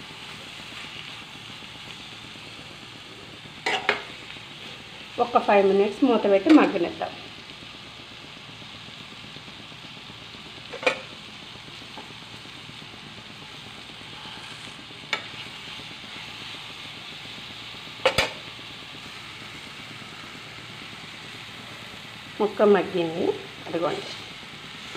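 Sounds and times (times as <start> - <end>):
vegetables sizzling in a pan: 0.0 - 24.9.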